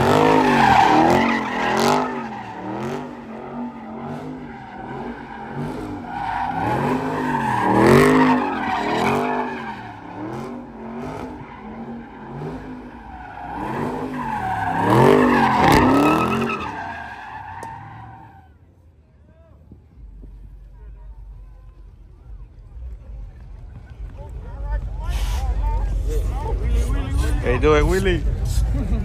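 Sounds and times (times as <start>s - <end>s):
car engine revving: 0.0s - 16.9s.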